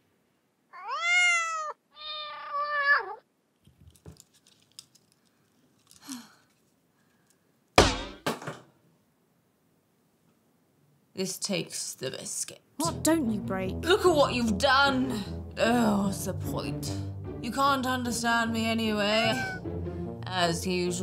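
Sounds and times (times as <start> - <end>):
cat meowing: 0.7 - 3.2, 19.1 - 19.6
sharp knocks: 7.8 - 8.6.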